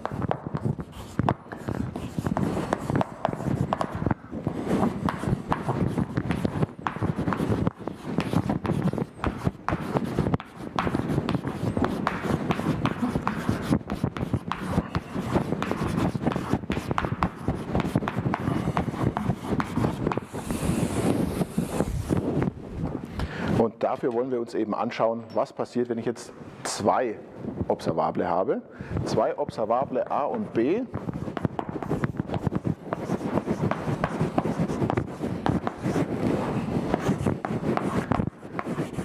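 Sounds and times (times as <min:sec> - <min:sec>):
chalk writing on a blackboard: 0:00.0 - 0:22.3, 0:30.3 - 0:39.0.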